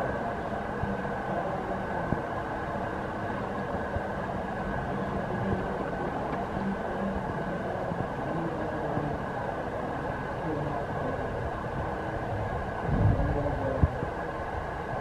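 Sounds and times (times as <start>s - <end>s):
steady high hum: 0.0s - 15.0s.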